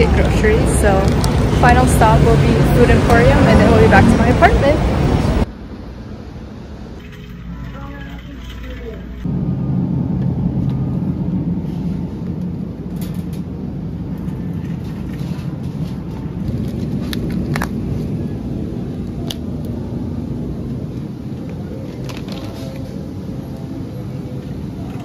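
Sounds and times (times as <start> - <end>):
supermarket background hum: 0.0 - 25.0.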